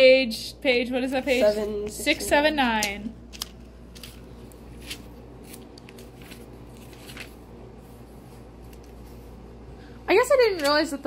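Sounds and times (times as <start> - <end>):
low room hum: 0.0 - 11.0
paper pages rustling: 3.2 - 9.4.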